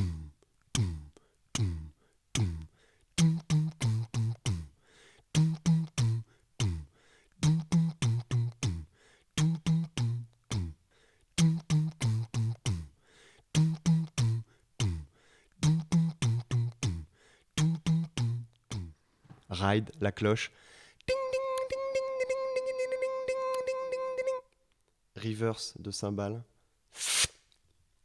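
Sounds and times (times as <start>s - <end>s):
man beatboxing tom sounds: 0.0s - 10.8s, 11.4s - 19.0s, 21.1s - 24.4s.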